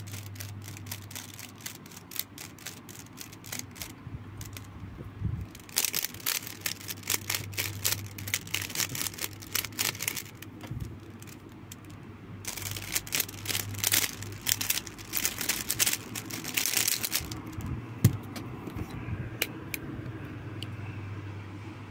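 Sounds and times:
plastic puzzle cube clicking: 0.0 - 4.7, 5.5 - 17.6.

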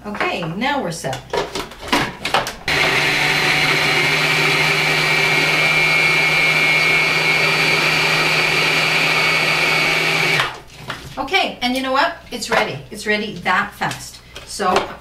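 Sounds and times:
food processor humming and whining: 2.7 - 10.6.

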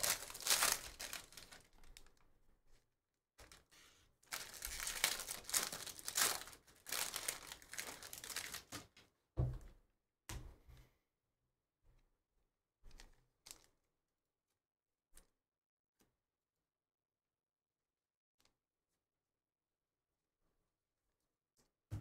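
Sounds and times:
foil wrapper tearing and crinkling: 0.0 - 2.2, 4.3 - 8.8.

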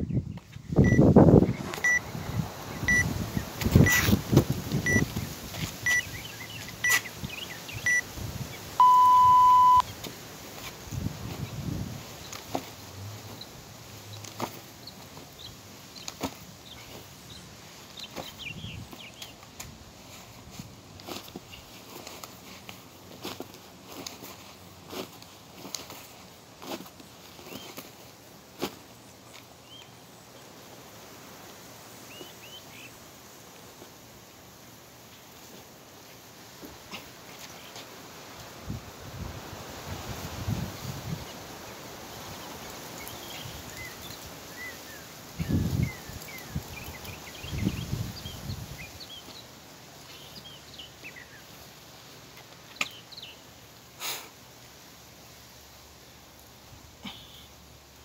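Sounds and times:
bird chirps: 0.0 - 4.0, 4.8 - 5.1, 5.8 - 8.0, 8.8 - 10.0
long low beep: 0.8 - 1.0, 2.9 - 3.1, 8.8 - 9.9
short high beeps: 0.8 - 1.0, 1.8 - 2.0, 2.9 - 3.1, 3.8 - 4.0, 8.8 - 9.9
rucksack knocks and rustles: 14.2 - 15.3.

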